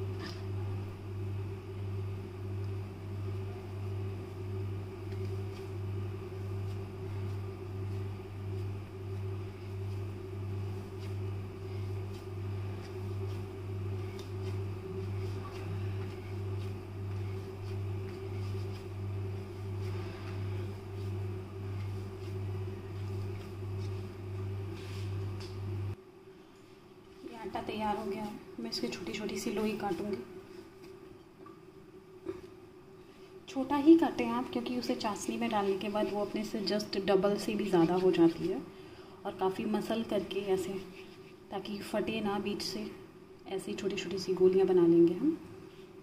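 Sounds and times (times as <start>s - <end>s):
steady electric hum: 0.0s - 46.0s
hands kneading on wooden board: 4.9s - 25.6s.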